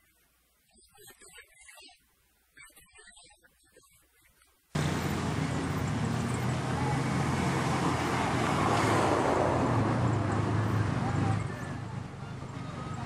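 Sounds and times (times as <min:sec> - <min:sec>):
street traffic noise: 0:04.8 - 0:13.0.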